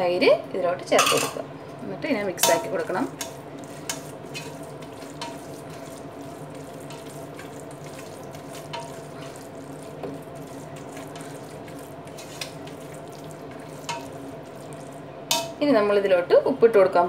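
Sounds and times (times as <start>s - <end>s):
steady low hum: 0.0s - 17.0s
spatula scraping in steel pot: 3.2s - 14.9s.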